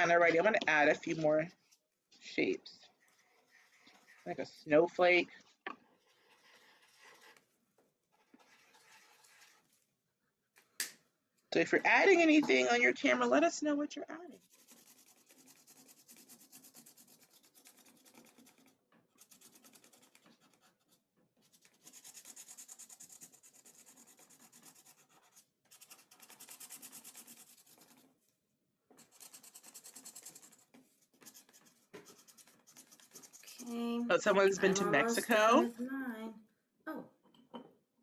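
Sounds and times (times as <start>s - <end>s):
marker scribbling on cardboard: 2.8s - 5.1s, 5.8s - 7.5s, 8.1s - 9.7s, 14.3s - 28.2s, 29.0s - 35.7s.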